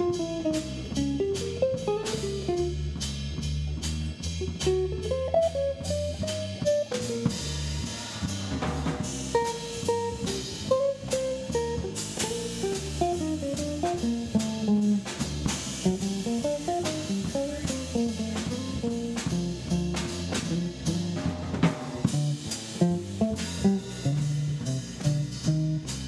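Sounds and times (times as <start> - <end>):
electric guitar melody: 0.0 - 2.9, 4.6 - 7.4, 9.3 - 21.0
electric bass: 0.0 - 26.0.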